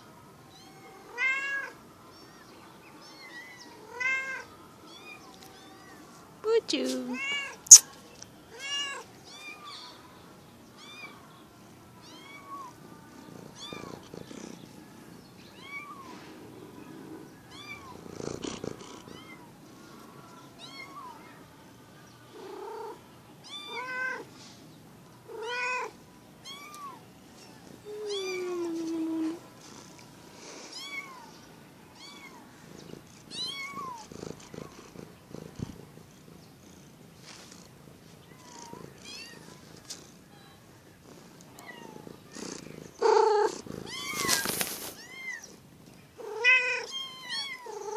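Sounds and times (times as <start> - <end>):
kittens mewing: 41.6 - 45.4.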